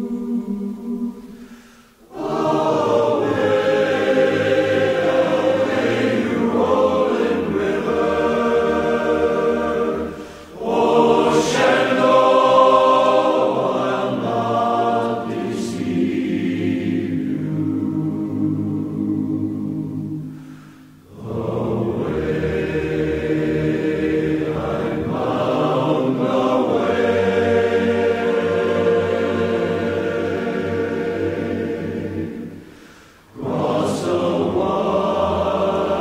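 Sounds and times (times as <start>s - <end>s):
choir singing: 0.0s - 36.0s.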